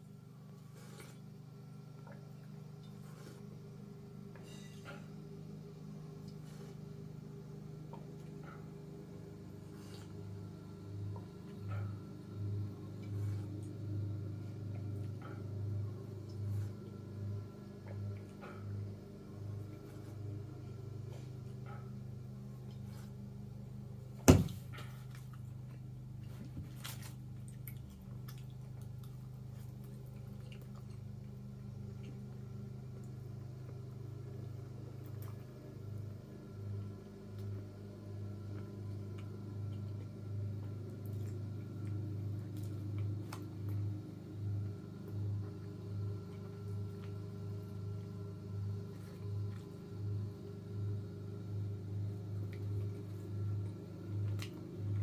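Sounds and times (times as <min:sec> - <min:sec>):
pulsing low hum: 0:00.0 - 0:55.0
quiet chewing: 0:24.7 - 0:35.6, 0:38.3 - 0:55.0.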